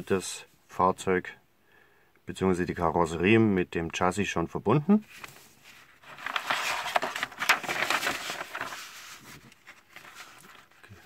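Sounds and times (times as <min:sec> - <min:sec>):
paper page rustling: 0:05.1 - 0:11.0.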